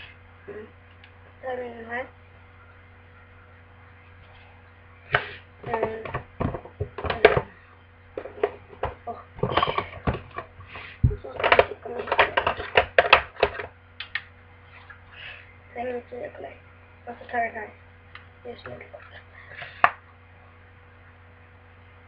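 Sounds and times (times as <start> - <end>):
low electrical hum: 0.0 - 22.0
plastic cases clattering: 8.2 - 10.5, 11.1 - 13.7.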